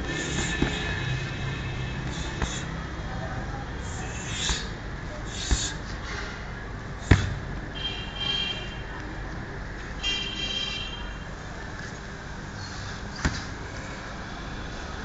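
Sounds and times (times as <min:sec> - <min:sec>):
gloved punches on heavy bag: 0:00.0 - 0:01.0, 0:05.3 - 0:05.8, 0:07.0 - 0:07.5.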